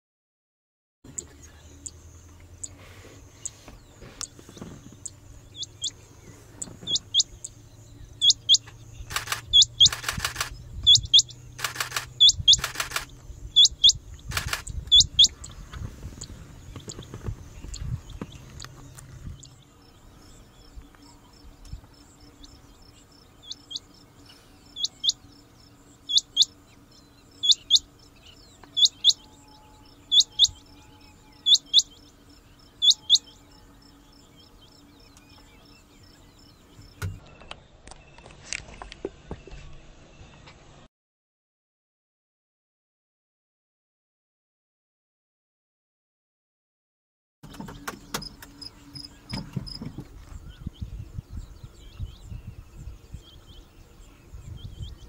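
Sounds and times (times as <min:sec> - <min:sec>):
low steady hum: 0:01.1 - 0:38.2
quail calling: 0:02.6 - 0:07.5, 0:08.2 - 0:18.8, 0:24.7 - 0:25.2, 0:26.1 - 0:26.6, 0:27.4 - 0:27.9, 0:28.6 - 0:29.2, 0:30.1 - 0:30.7, 0:31.4 - 0:32.0, 0:32.8 - 0:33.5.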